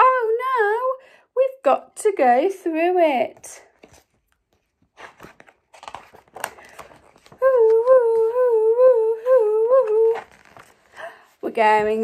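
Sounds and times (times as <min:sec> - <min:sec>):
book pages turning: 0:03.3 - 0:08.6, 0:09.6 - 0:12.0.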